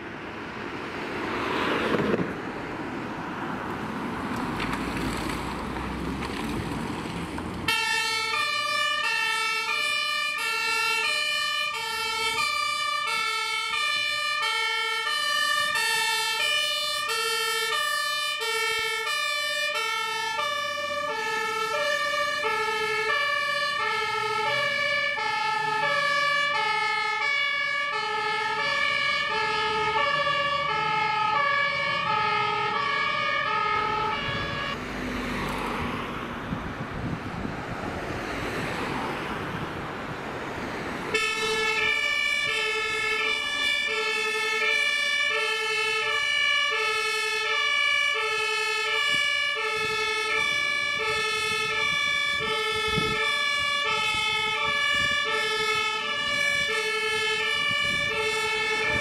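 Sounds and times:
two-tone fire engine siren: 7.6s - 36.3s, 40.8s - 59.0s.

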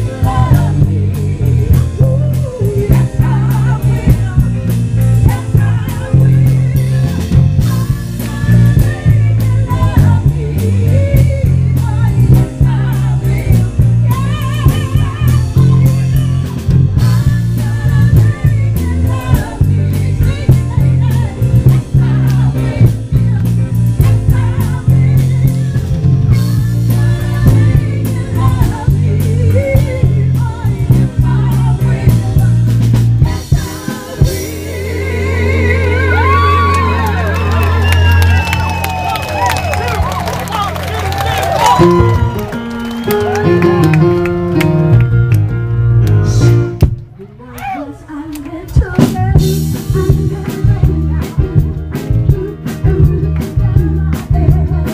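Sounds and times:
women singing: 0.0s - 37.4s, 47.2s - 54.9s
drum kit: 0.0s - 47.1s, 48.6s - 54.9s
heavy bass from speakers: 0.0s - 47.2s, 48.8s - 54.9s
electric guitar: 36.2s - 47.8s.

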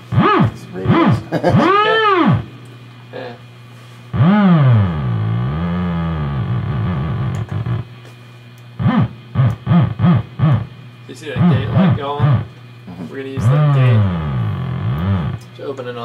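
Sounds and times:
steady low hum: 0.0s - 16.0s
swooping electronic synth tone: 0.1s - 2.6s, 4.2s - 7.9s, 8.8s - 10.8s, 11.4s - 12.5s, 13.4s - 15.4s.

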